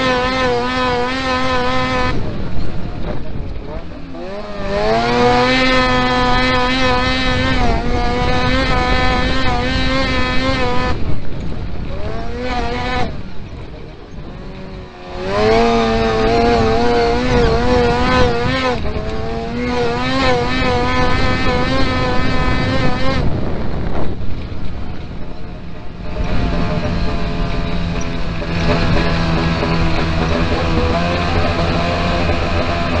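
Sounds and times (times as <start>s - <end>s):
buggy engine revving: 0.0s - 33.0s.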